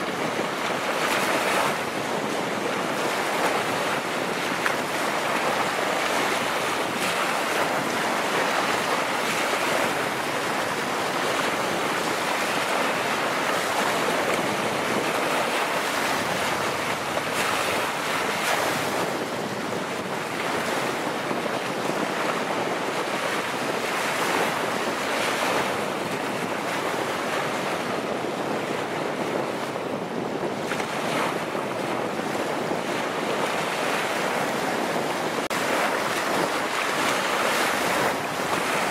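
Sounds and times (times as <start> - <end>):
water splashing and lapping: 0.0 - 28.1, 30.5 - 38.9
wind: 0.0 - 38.9.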